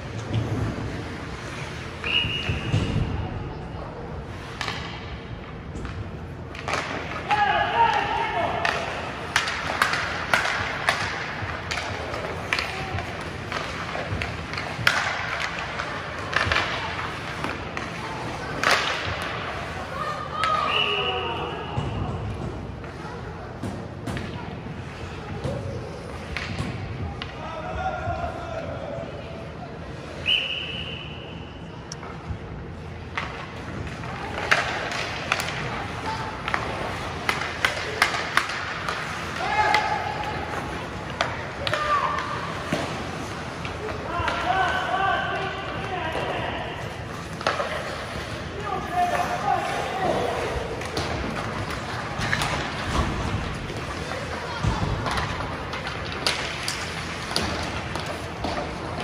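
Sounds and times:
skates scraping on ice: 0:00.0 - 0:03.1, 0:06.1 - 0:20.1, 0:33.3 - 0:44.9, 0:45.6 - 0:59.0
hockey sticks and puck clacking: 0:04.2 - 0:27.5, 0:31.9 - 0:59.0
skate blades scraping ice: 0:46.8 - 0:59.0.

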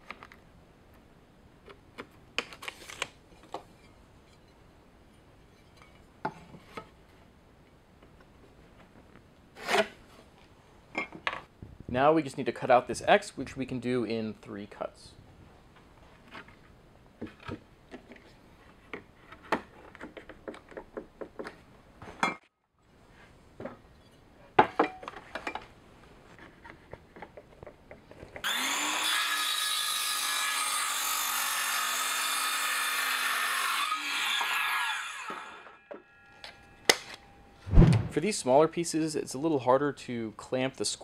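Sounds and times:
circular saw cutting wood: 0:28.4 - 0:35.8.

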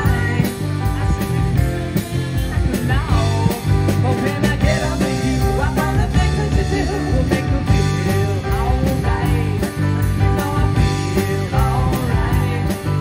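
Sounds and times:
female lead vocal: 0:00.0 - 0:13.0
live rock band playing: 0:00.0 - 0:13.0.

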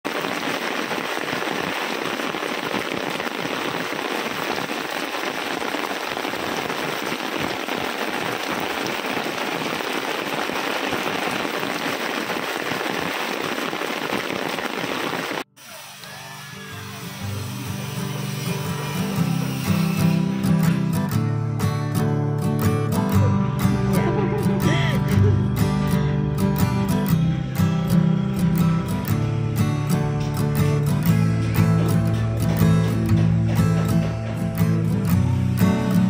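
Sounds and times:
heavy rain on a tent tarp: 0:00.0 - 0:15.5, 0:22.8 - 0:27.2, 0:27.8 - 0:36.0.

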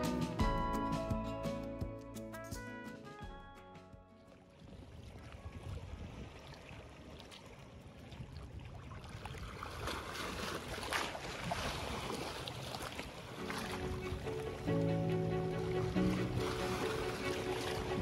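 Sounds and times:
waves splashing over rocks: 0:08.8 - 0:14.9, 0:15.6 - 0:18.0.

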